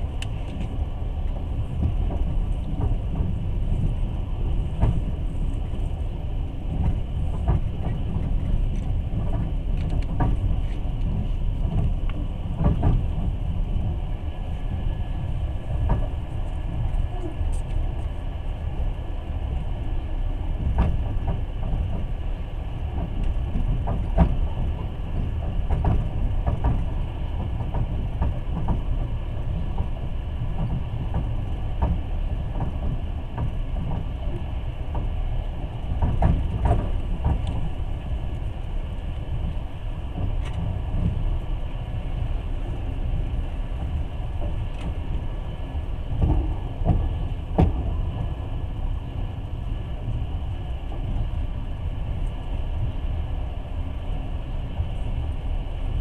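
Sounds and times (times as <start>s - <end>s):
train rumble from inside carriage: 0.0s - 56.0s
wheels knocking and clacking: 6.7s - 14.0s, 22.9s - 41.4s.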